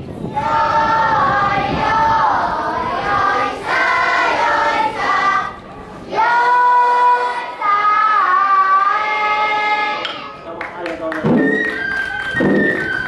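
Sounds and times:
children singing a chant: 0.3 - 10.3.

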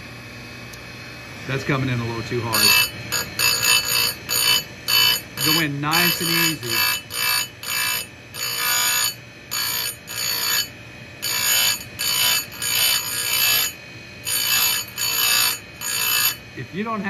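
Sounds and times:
grinder motor humming: 0.0 - 17.0
grinding wheel hissing on metal: 1.4 - 17.0.

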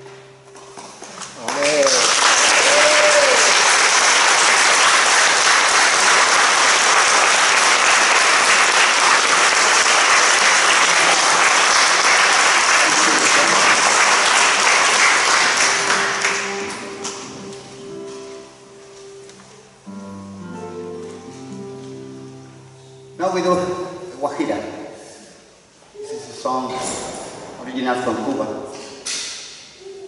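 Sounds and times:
audience applauding: 1.4 - 17.1.

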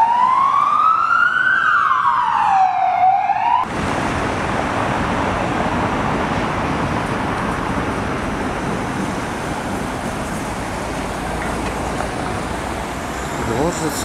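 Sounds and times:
police siren wailing: 0.0 - 3.7
street traffic: 0.0 - 14.0.

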